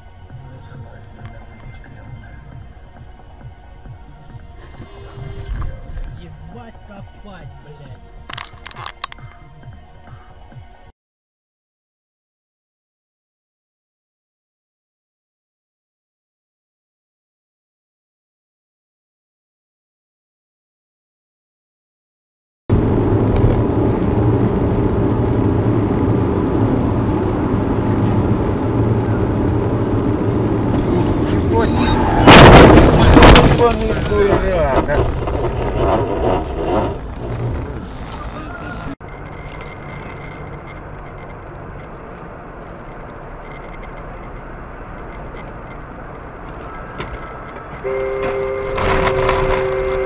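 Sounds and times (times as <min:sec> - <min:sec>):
car engine and road noise: 0:00.0 - 0:10.9, 0:22.7 - 0:50.0.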